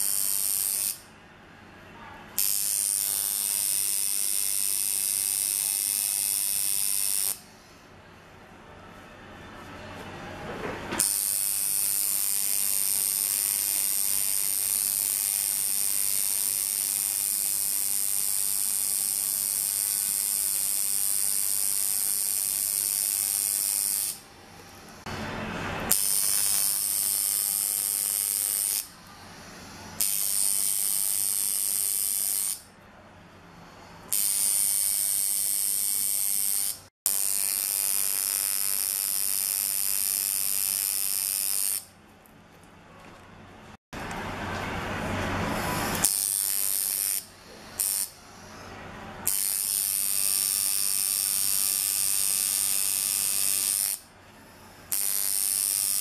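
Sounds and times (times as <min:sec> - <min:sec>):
tattoo machine buzzing: 0:00.0 - 0:01.0, 0:02.4 - 0:07.4, 0:11.0 - 0:24.2, 0:25.9 - 0:32.7, 0:34.1 - 0:41.9, 0:45.9 - 0:48.2, 0:49.2 - 0:54.1, 0:54.9 - 0:56.0.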